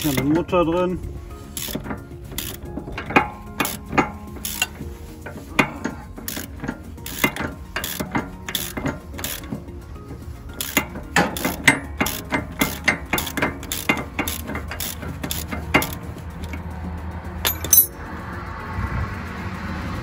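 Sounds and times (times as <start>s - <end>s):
background music: 0.0s - 20.0s
ratchet wrench clicking: 1.4s - 9.8s, 10.5s - 16.7s, 17.4s - 18.0s
metallic clinks of loose parts: 1.5s - 16.7s, 17.4s - 18.0s.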